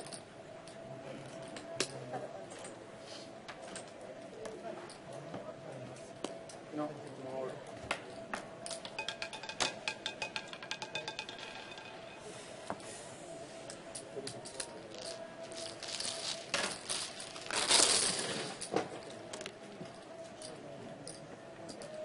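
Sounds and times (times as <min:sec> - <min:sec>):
roulette ball clattering on wheel: 0:08.7 - 0:12.2.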